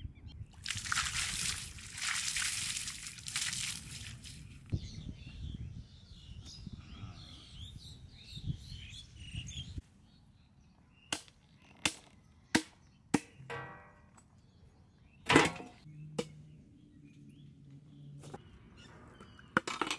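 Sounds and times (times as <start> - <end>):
birds chirping: 4.1 - 19.7.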